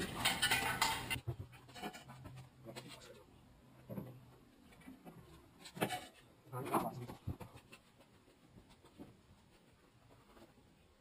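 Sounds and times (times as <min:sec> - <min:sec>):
metal jack stand clatter: 0:00.0 - 0:02.2.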